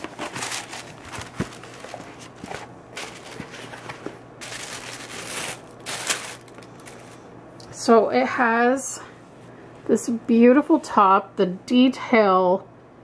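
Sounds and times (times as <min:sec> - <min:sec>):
tissue paper rustling: 0:00.0 - 0:07.3.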